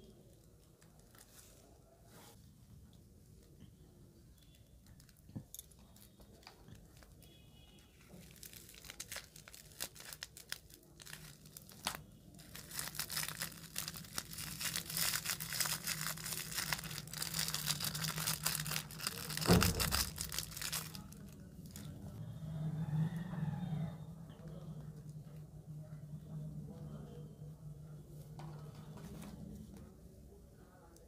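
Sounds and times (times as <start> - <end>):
plastic piping bag crinkling: 4.8 - 22.2
thump: 19.5 - 20.0.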